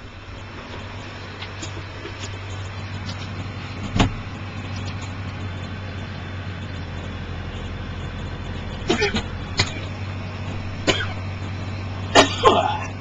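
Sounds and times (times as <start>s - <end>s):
tractor engine under load: 0.0s - 13.0s
forage harvester chopping: 8.8s - 11.2s.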